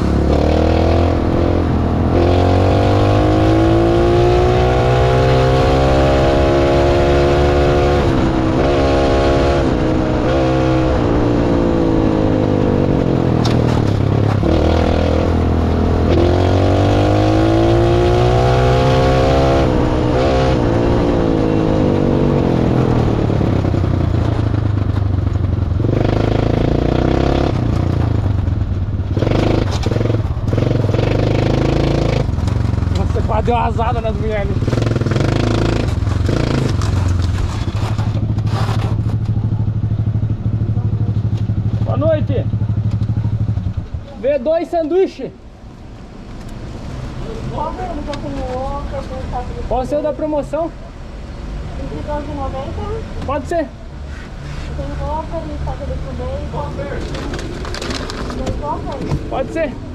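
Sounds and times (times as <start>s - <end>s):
small car engine accelerating: 0.0s - 24.8s.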